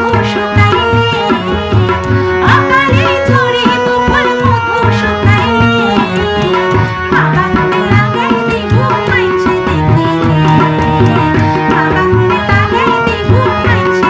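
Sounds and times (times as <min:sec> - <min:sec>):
tabla strokes: 0:00.0 - 0:14.0
woman singing folk song: 0:00.0 - 0:14.0.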